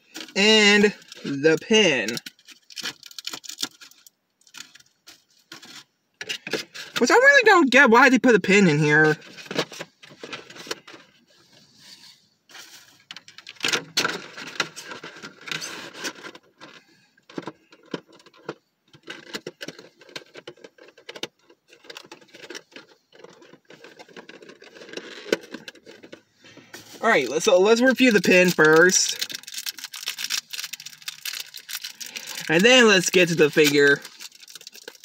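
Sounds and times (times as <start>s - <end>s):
cardboard box rustling and crinkling: 19.0s - 35.0s.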